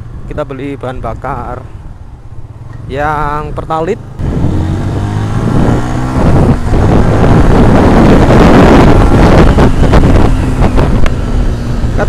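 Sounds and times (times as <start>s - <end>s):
motorcycle engine pulling away: 4.2s - 12.0s
wind rushing on microphone: 4.2s - 12.0s.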